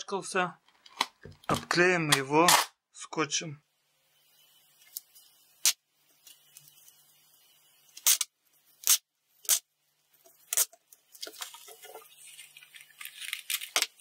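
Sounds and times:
packing tape ripping off roll: 7.9s - 9.7s, 10.4s - 11.4s, 12.3s - 14.0s
tape rustling on paper: 10.5s - 14.0s.

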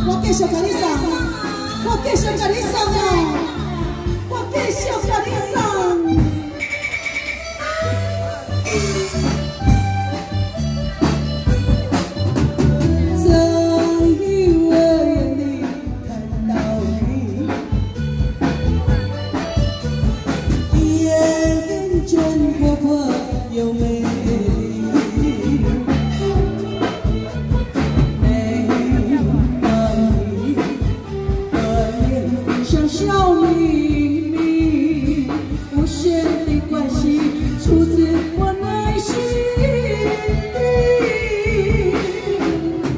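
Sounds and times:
opera singer through microphone: 0.0s - 6.6s, 12.9s - 17.9s, 20.7s - 26.5s, 28.0s - 42.9s.

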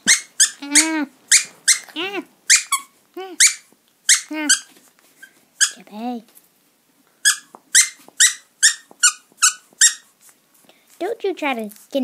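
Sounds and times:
dog play whines: 0.0s - 5.8s, 7.2s - 10.2s
squeaky toy squeaking: 0.0s - 5.9s, 7.2s - 10.2s.

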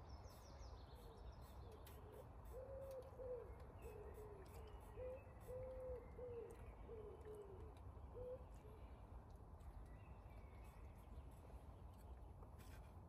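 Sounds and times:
bird low hooting calls: 1.0s - 8.9s.

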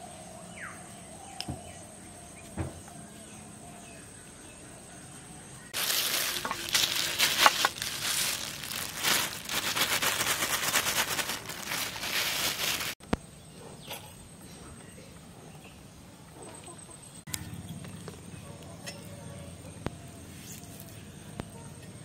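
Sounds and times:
plastic bag crinkling: 5.8s - 13.0s.

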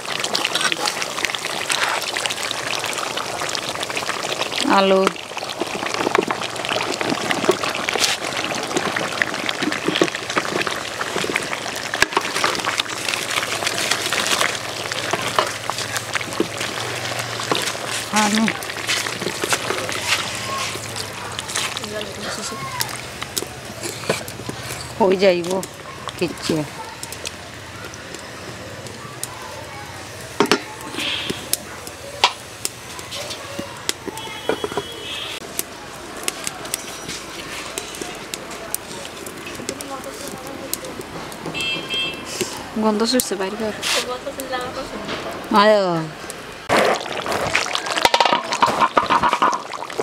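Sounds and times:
curry bubbling and sizzling in pot: 0.0s - 50.0s
small pops and crackles: 3.4s - 29.4s, 30.4s - 45.6s, 46.6s - 50.0s
wooden spatula stirring: 4.3s - 26.5s, 46.7s - 50.0s.

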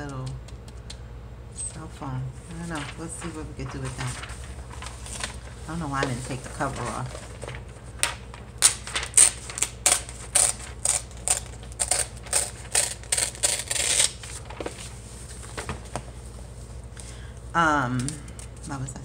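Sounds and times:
magazine page tearing: 6.2s - 14.9s.

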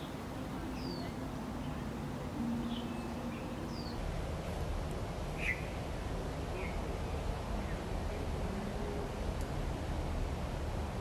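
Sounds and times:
bird chirps: 0.0s - 4.0s, 5.4s - 5.7s
steady low rumble: 0.0s - 11.0s.

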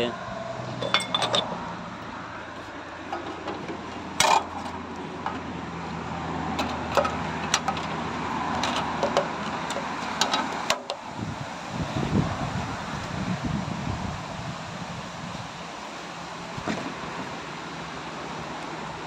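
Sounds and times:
metallic clicks and knocks: 0.8s - 1.5s, 6.5s - 11.0s.

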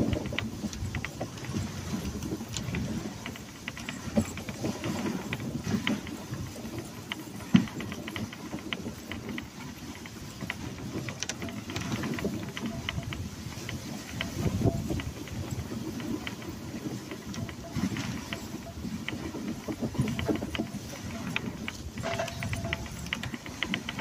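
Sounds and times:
light clicks and rattles: 0.0s - 24.0s
sled runners scraping on snow: 0.0s - 24.0s.

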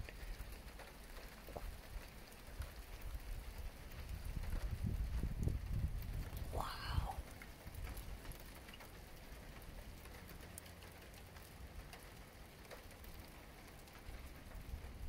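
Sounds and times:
faint steady rain: 0.0s - 15.0s
water drips: 6.3s - 15.0s.

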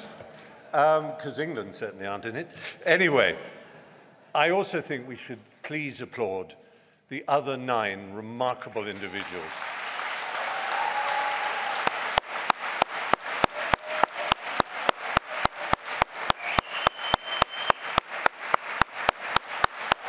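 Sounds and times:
audience applause: 8.9s - 20.0s
rhythmic clapping in unison: 11.7s - 20.0s.

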